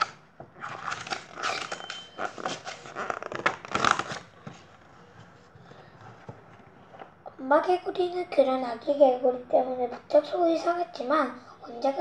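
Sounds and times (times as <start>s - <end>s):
paper page turning and rustling: 0.6s - 5.4s.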